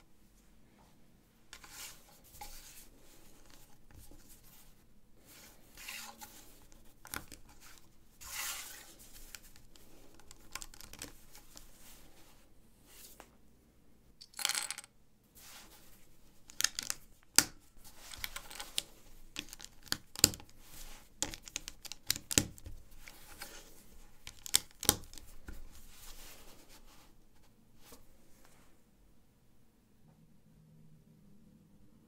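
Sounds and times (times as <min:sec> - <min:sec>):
rustling scrape: 0:00.7 - 0:10.1
plastic bricks clicking: 0:14.2 - 0:14.9, 0:16.5 - 0:17.5.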